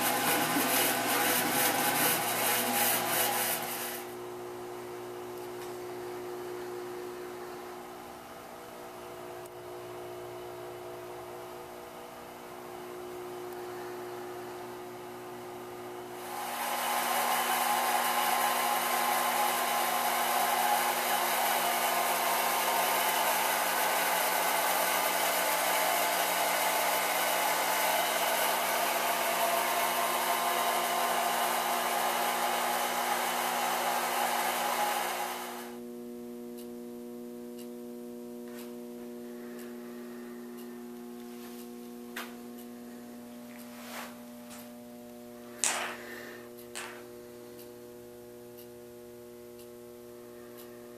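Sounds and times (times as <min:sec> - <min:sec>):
electric blower rushing: 0:00.0 - 0:04.2, 0:16.2 - 0:35.8
electrical hum: 0:00.0 - 0:50.9.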